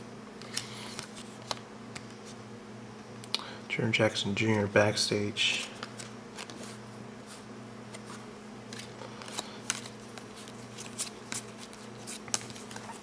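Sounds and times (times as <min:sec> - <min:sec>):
low steady hum: 0:00.0 - 0:13.0
cardboard cards clicking and rustling: 0:05.5 - 0:06.8, 0:07.9 - 0:13.0.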